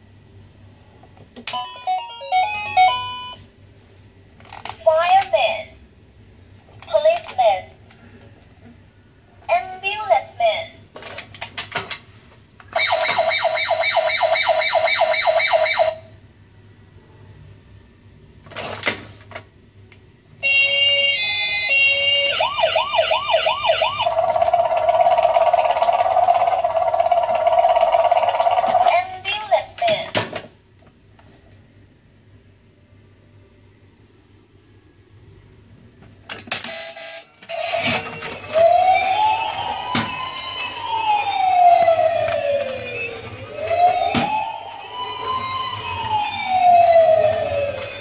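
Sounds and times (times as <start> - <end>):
warbling electronic siren: 12.8 - 16.0, 21.2 - 28.9, 36.7 - 48.0.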